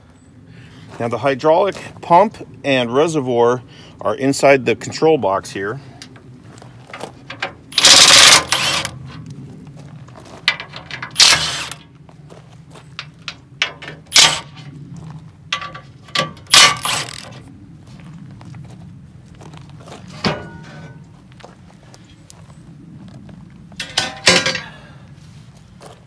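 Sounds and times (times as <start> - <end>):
cordless drill whirring: 7.8 - 8.9
screws clicking: 7.8 - 8.9, 11.1 - 11.8.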